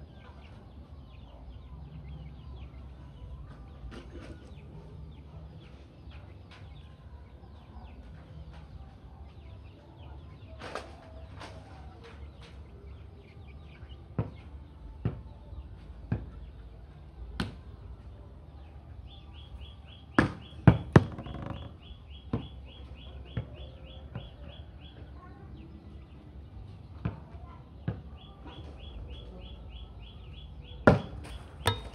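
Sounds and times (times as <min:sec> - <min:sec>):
volleyball slaps: 0:17.4 - 0:17.6, 0:30.9 - 0:31.9.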